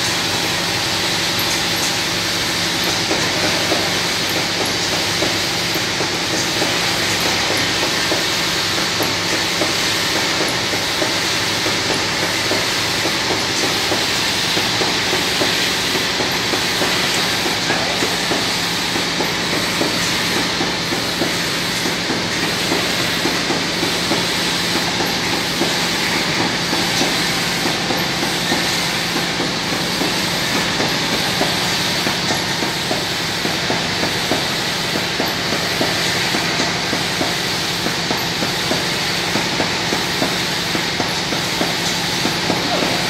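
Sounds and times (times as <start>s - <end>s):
clatter of bottles and conveyor: 0.0s - 43.0s.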